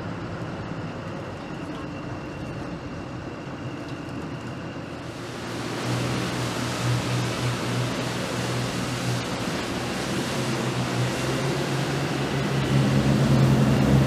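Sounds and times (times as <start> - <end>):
faint high whine: 0.0 - 14.0
boat engine running: 5.0 - 14.0
water spray rushing: 5.1 - 14.0.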